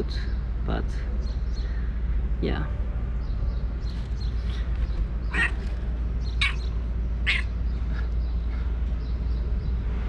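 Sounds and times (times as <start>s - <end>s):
crow cawing: 5.3s - 5.7s, 6.4s - 7.5s.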